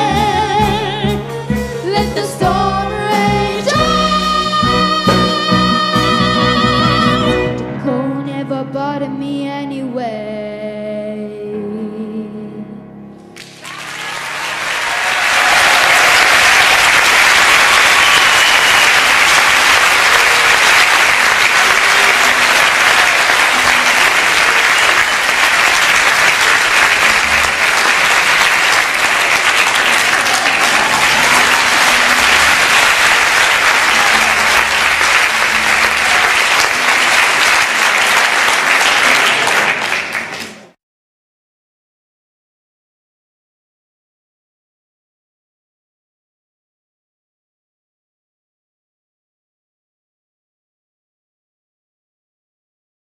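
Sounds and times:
audience applauding: 13.4 - 40.8.

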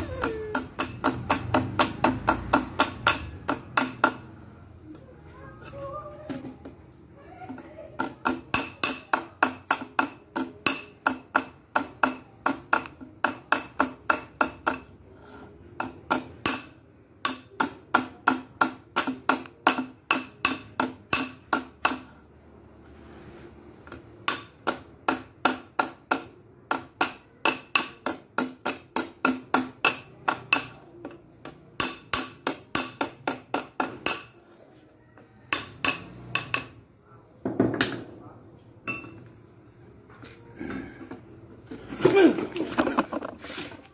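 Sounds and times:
hammer tapping on metal: 0.0 - 4.3, 8.0 - 15.0, 15.7 - 22.2, 23.8 - 34.4, 35.4 - 36.8.

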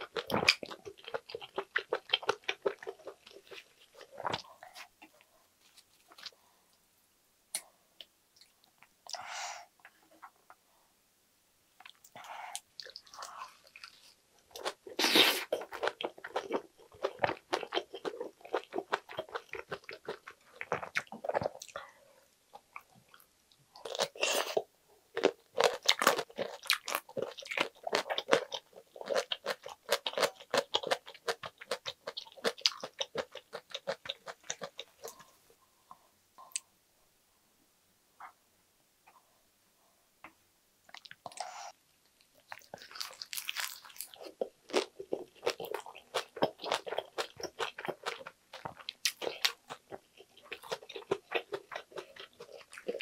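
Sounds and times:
wet crunchy chewing: 42.4 - 53.0.

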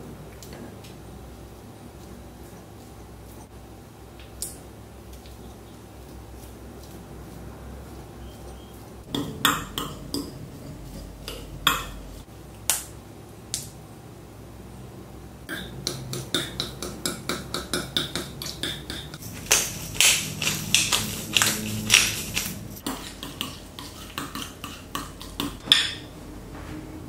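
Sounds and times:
utensils clinking against dishes: 15.5 - 26.1.

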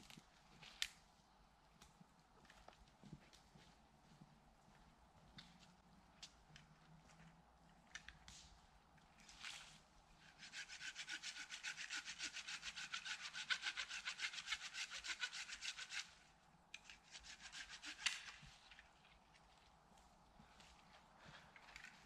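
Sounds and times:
hand saw cutting wood: 10.3 - 16.2, 17.0 - 18.4.

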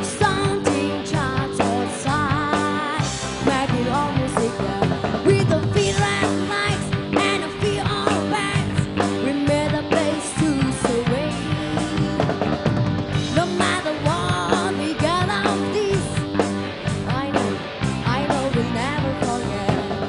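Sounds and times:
woman singing: 0.0 - 12.6, 13.2 - 20.0
live rock band playing: 0.0 - 20.0.

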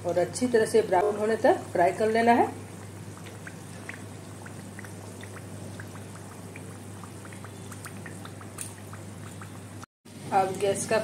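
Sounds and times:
oil bubbling with pops and crackles: 0.0 - 9.9.

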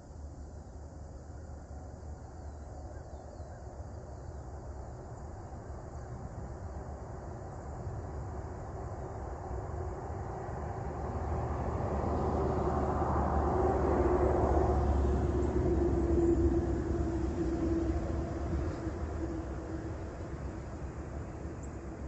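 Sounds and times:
distant vehicle passing: 10.3 - 21.6.

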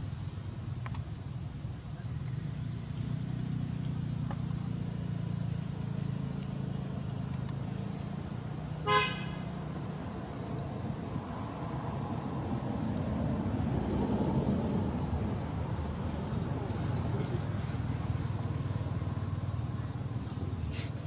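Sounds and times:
vehicle engine rumble: 0.0 - 21.0
horn toot: 8.8 - 9.4.

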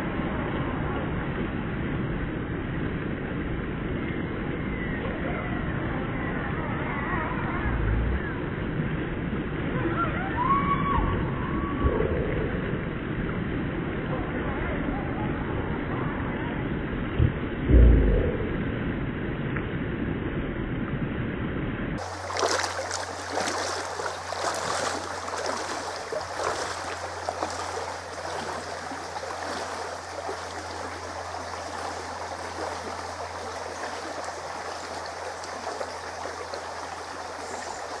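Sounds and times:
short muffled rumble: 6.2 - 8.6, 17.1 - 19.1
shallow stream running: 22.0 - 38.0
splashes of wading in water: 22.0 - 38.0.

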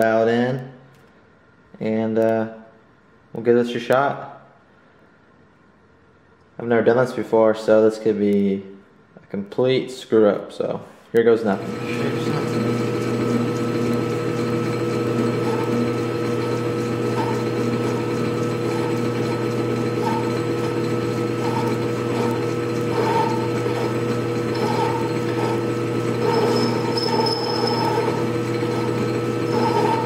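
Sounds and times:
lathe motor hum: 11.4 - 30.0
cutting tool squeaks: 16.5 - 30.0.

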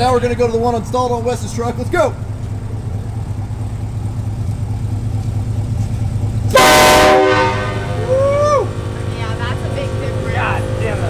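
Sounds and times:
train horn blast: 6.5 - 8.1
rising and falling whoop: 7.8 - 8.8.

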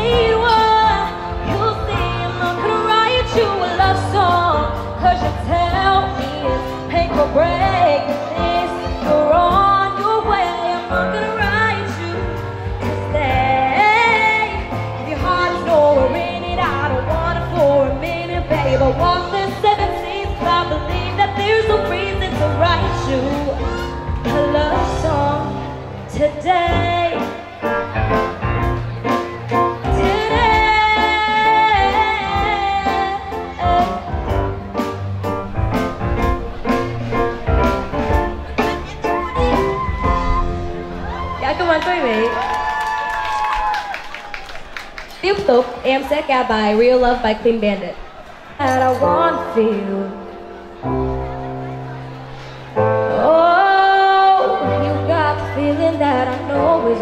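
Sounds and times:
woman singing: 0.0 - 27.6, 29.8 - 34.6, 48.6 - 50.3, 53.1 - 57.0
keyboards: 0.0 - 43.3, 44.6 - 57.0
drum kit beat: 26.7 - 41.8.

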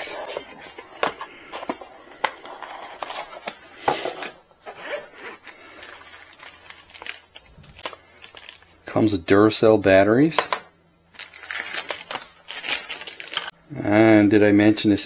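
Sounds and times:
cardboard scraping and rubbing: 0.0 - 5.6
cardboard box being unboxed: 0.0 - 8.6.

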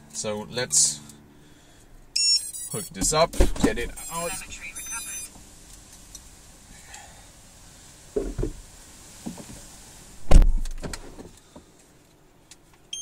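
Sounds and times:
wind hiss: 2.7 - 11.9
car door shutting thump: 3.0 - 4.0, 8.2 - 8.6, 10.2 - 11.3.

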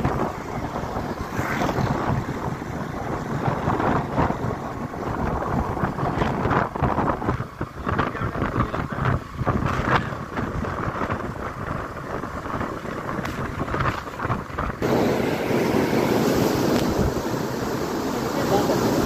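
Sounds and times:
rushing background noise: 0.0 - 19.0
wind buffeting microphone: 0.0 - 19.0
even hiss: 13.1 - 19.0.

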